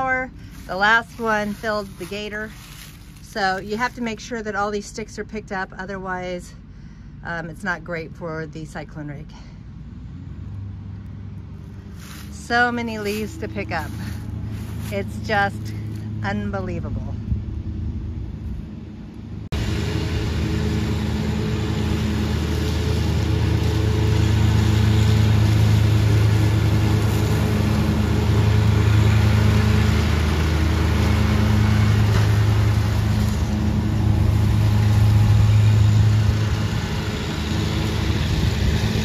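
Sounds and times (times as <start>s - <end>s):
tractor engines running: 0.0s - 39.0s
leaf vacuum whooshing: 0.3s - 3.5s, 19.6s - 39.0s.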